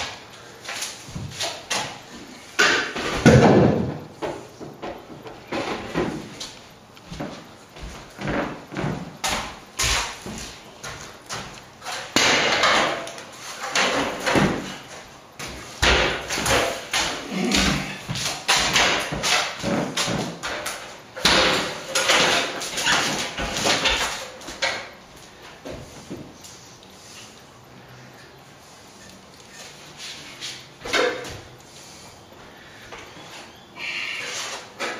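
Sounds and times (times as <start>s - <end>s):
ladder dragging: 0.0s - 27.4s
metal stepladder clattering: 8.2s - 25.0s, 30.8s - 31.4s.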